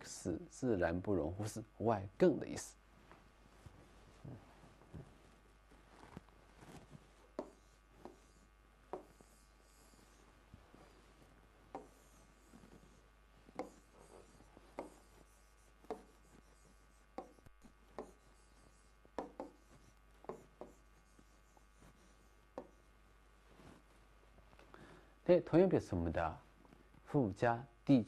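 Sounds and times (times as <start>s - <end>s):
pen scratching on board: 7.2s - 11.0s, 11.7s - 22.9s.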